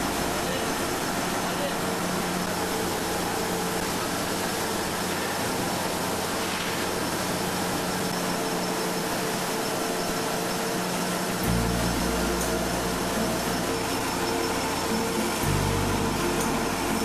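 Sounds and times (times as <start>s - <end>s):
laminating machine humming: 0.0s - 17.0s.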